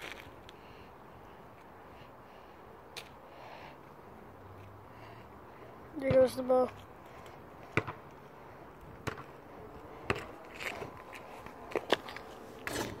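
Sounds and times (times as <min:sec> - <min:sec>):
basketball bouncing on asphalt: 0:06.0 - 0:13.0.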